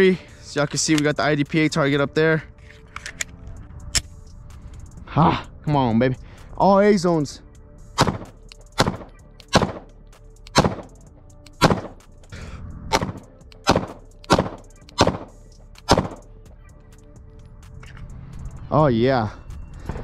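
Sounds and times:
pistol slide locking back: 0:02.6 - 0:04.2, 0:10.4 - 0:12.0, 0:12.9 - 0:16.3
pistol shots: 0:08.0 - 0:09.9, 0:10.5 - 0:10.9, 0:11.5 - 0:12.0, 0:12.9 - 0:16.3.

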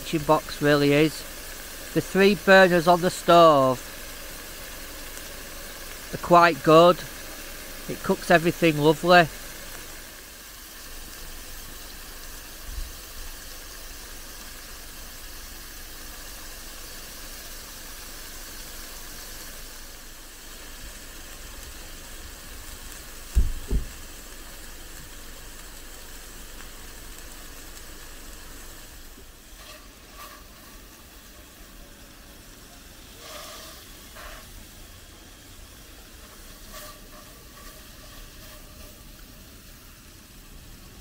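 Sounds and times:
steaks sizzling in a pan: 0:00.0 - 0:41.0
dull thumps: 0:23.3 - 0:24.0.

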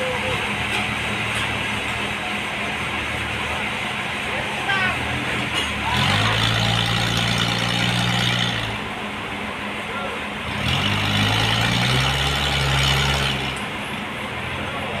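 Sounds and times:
sawmill engine cutting log: 0:05.4 - 0:09.1, 0:10.4 - 0:14.0.

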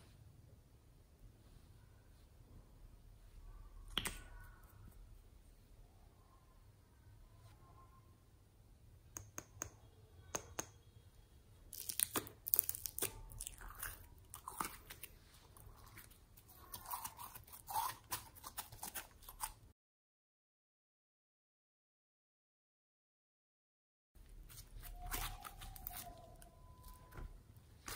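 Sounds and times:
slime crackling and popping: 0:11.7 - 0:15.1.

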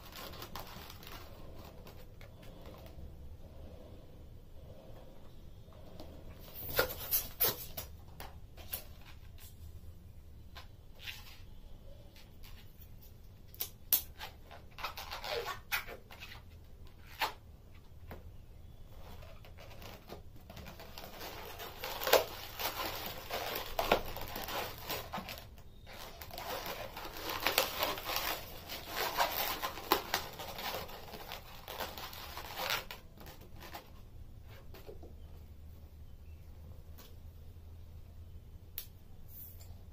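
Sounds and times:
balloons rubbing and squeaking: 0:00.0 - 0:09.6, 0:14.1 - 0:17.7, 0:18.4 - 0:34.8.

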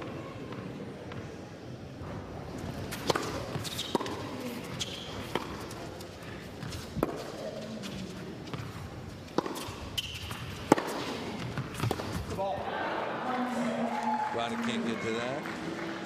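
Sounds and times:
tennis ball hitting rackets: 0:02.6 - 0:12.4
shoe squeaks on court: 0:03.5 - 0:05.4, 0:09.5 - 0:10.5.

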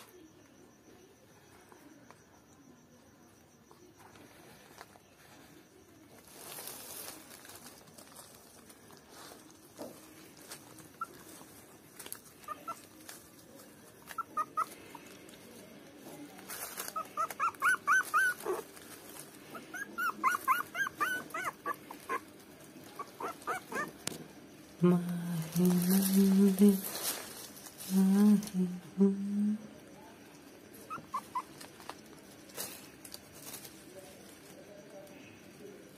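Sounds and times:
puppies squeaking and whimpering: 0:12.3 - 0:13.0, 0:13.9 - 0:15.0, 0:16.7 - 0:18.8, 0:19.5 - 0:24.0, 0:30.8 - 0:31.7.

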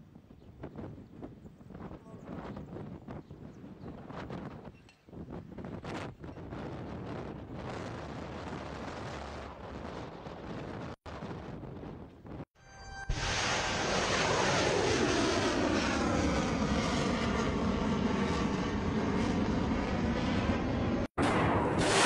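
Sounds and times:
missile launch rocket roar: 0:06.7 - 0:12.5, 0:13.1 - 0:22.0.

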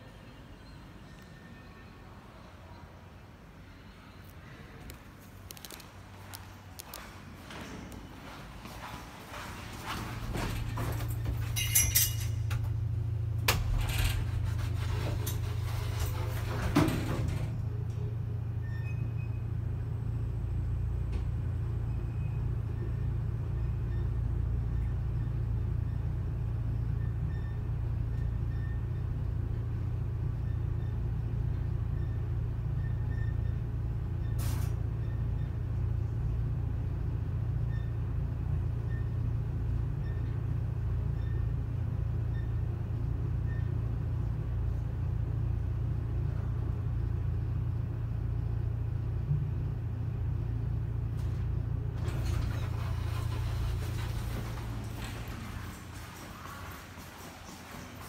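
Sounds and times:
lift hum and rumble: 0:00.0 - 0:58.0
knocks and rattles: 0:09.9 - 0:12.8.

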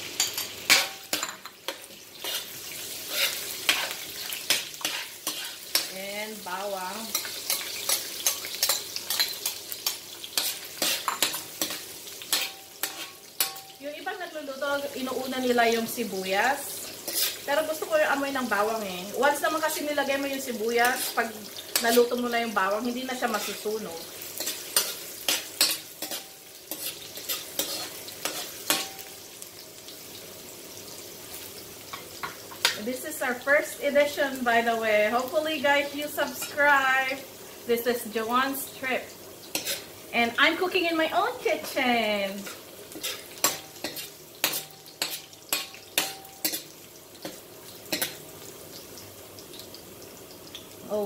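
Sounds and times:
ginger and garlic sizzling in oil: 0:00.0 - 0:51.0
utensil scraping a pan: 0:00.2 - 0:05.9, 0:07.1 - 0:13.7, 0:17.0 - 0:17.5, 0:20.8 - 0:22.2, 0:24.4 - 0:29.0, 0:39.5 - 0:39.9, 0:41.6 - 0:48.2.

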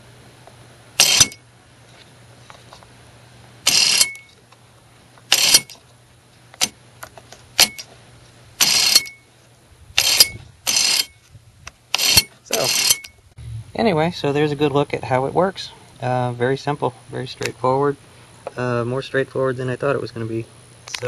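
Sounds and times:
small electric motor whirring: 0:01.0 - 0:01.4, 0:03.6 - 0:04.3, 0:05.3 - 0:05.8, 0:08.6 - 0:09.2, 0:10.0 - 0:11.3, 0:11.9 - 0:13.1.

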